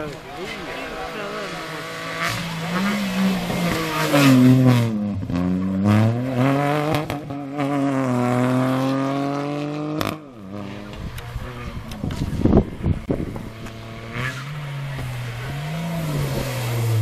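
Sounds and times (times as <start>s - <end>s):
car engine revving past: 0.3s - 17.0s.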